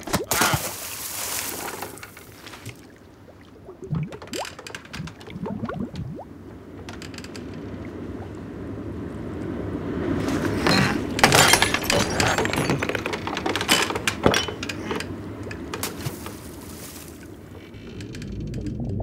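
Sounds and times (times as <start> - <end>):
low steady rumble: 2.9 - 19.0.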